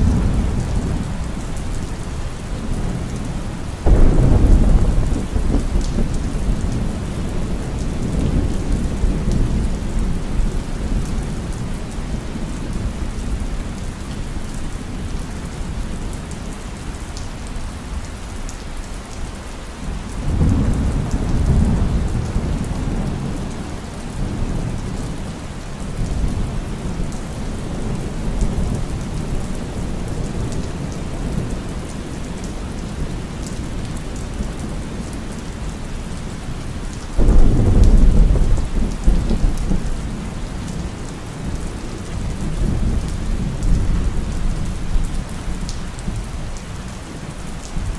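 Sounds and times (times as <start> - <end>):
steady rain: 0.0 - 47.9
rolling thunder: 3.8 - 11.6, 37.2 - 40.8.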